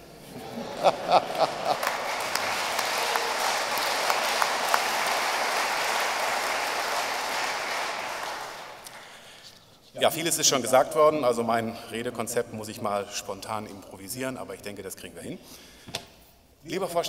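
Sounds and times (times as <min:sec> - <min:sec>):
audience laughing: 0:00.0 - 0:04.8
audience applauding: 0:00.0 - 0:09.4.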